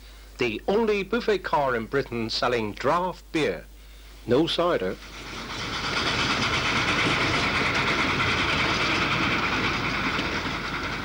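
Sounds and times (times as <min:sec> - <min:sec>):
steam train wheels rattling: 0:05.1 - 0:11.0.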